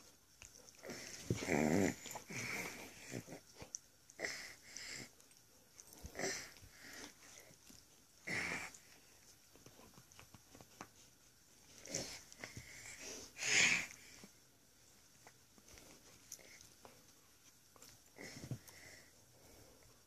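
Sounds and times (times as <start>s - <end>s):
dog sniffing and huffing: 5.9s - 14.3s.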